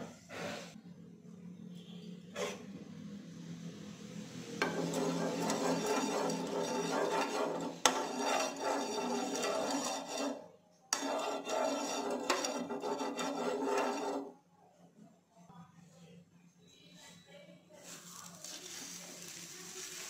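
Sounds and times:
ladle scraping a pan: 4.6s - 14.4s.

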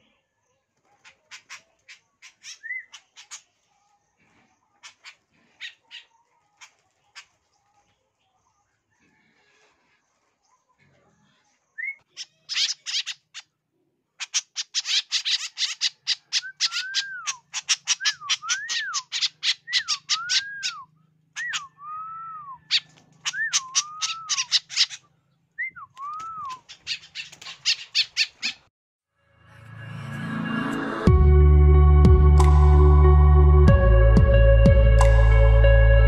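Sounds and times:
birds harsh rasping chatter: 0.8s - 13.6s, 14.2s - 21.8s, 22.6s - 28.7s
bird whistled notes: 16.4s - 20.8s.

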